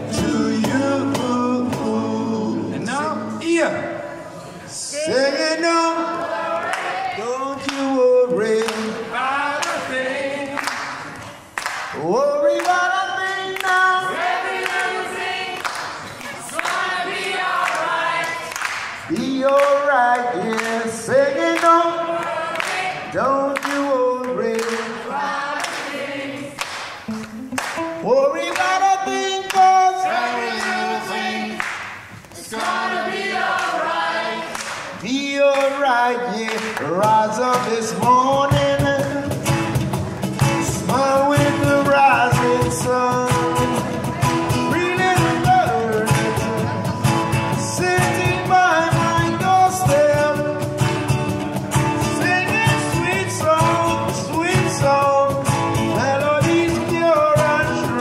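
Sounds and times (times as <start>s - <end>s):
percussive beat: 0.0s - 2.2s, 26.8s - 29.7s, 36.6s - 58.0s
voices singing in chorus: 0.0s - 2.9s, 4.8s - 11.2s, 12.0s - 26.7s, 28.4s - 36.3s.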